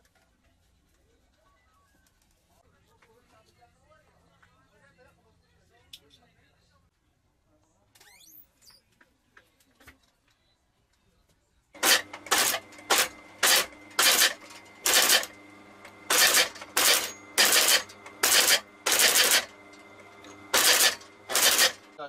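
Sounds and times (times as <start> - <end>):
machine stitching bursts: 11.8 - 22.0
stitching machine motor hum: 11.8 - 22.0.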